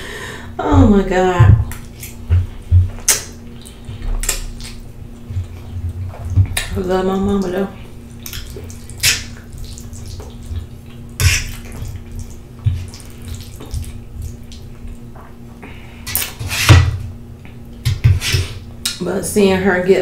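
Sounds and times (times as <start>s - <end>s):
faint steady hum: 0.0s - 20.0s
wet chewing and slurping: 7.5s - 15.4s.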